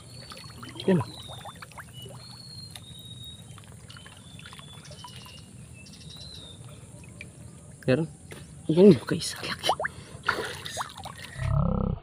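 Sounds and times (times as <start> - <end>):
water sloshing and splashing: 0.0 - 8.4, 9.7 - 11.4.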